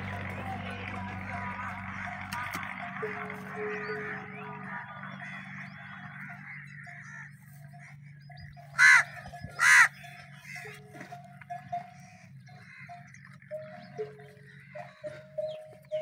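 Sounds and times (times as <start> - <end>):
low hum: 0.0 - 16.0
crow cawing: 1.0 - 11.1, 11.8 - 13.5, 14.5 - 15.5.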